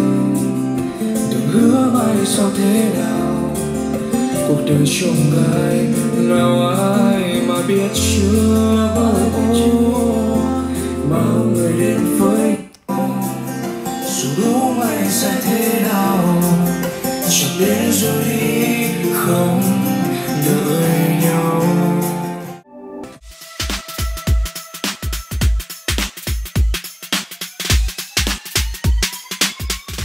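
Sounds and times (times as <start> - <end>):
song with singing and guitar: 0.0 - 22.7.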